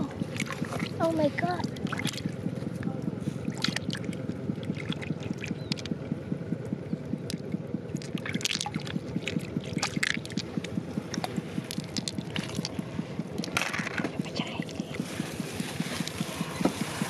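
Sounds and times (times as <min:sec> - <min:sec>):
water trickling and splashing: 0:00.0 - 0:06.0, 0:07.3 - 0:13.8
low rapid motor pulsing: 0:00.0 - 0:17.0.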